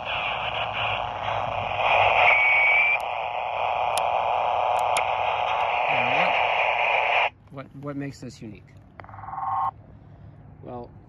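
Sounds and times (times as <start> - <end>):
walkie-talkie static hiss: 0.0 - 7.4, 9.0 - 9.7.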